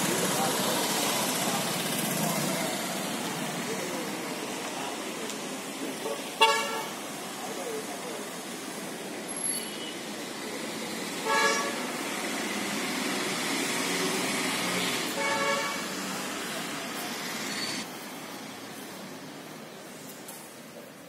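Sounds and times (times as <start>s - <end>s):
road traffic: 0.0s - 21.0s
vehicle horns tooting: 6.0s - 7.0s, 9.3s - 10.0s, 11.2s - 11.9s, 15.1s - 16.1s.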